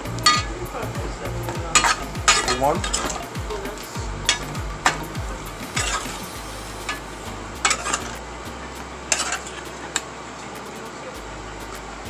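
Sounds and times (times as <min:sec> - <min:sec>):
steady sizzle: 0:00.0 - 0:12.0
metal spoon scraping a pot: 0:01.8 - 0:03.4, 0:05.7 - 0:08.2, 0:09.1 - 0:10.0.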